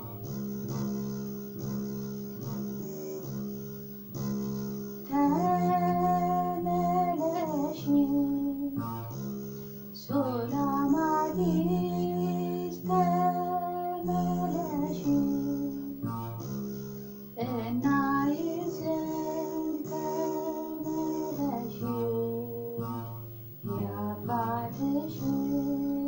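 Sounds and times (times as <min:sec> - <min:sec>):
lyre plucked: 0:00.0 - 0:26.0
woman singing a hymn: 0:05.1 - 0:08.9, 0:10.0 - 0:16.3, 0:17.4 - 0:26.0.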